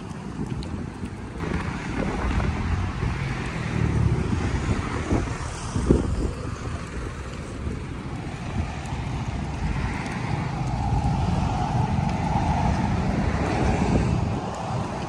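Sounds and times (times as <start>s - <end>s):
wind buffeting microphone: 0.0s - 15.0s
road traffic hiss: 1.4s - 15.0s.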